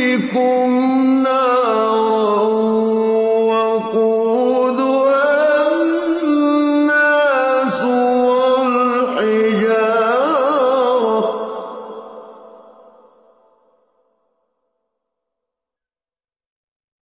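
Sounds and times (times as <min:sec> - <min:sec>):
man chanting melodically: 0:00.0 - 0:13.2.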